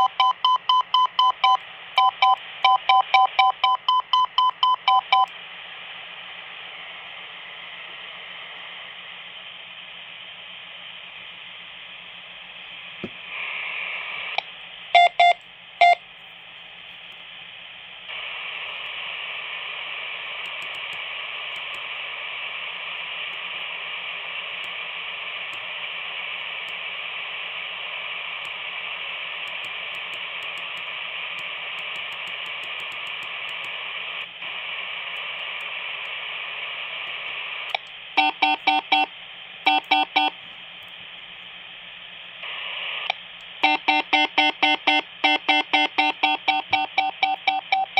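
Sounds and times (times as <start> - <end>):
morse code tone beeps: 0.0 - 5.3, 15.0 - 16.0, 38.2 - 39.1, 39.7 - 40.4, 43.6 - 47.9
radio speaker hiss: 5.0 - 15.0, 15.6 - 47.9.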